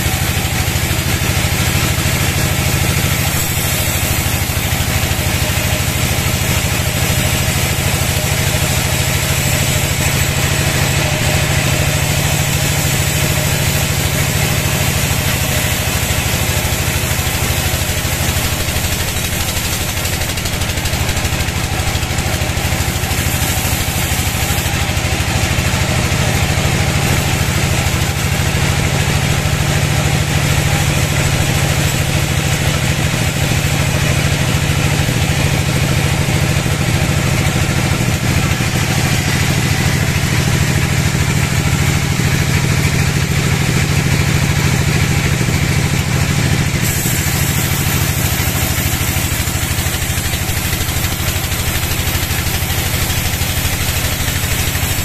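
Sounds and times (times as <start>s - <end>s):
band saw blade cutting log: 0.0s - 55.0s
motor drone: 0.0s - 55.0s.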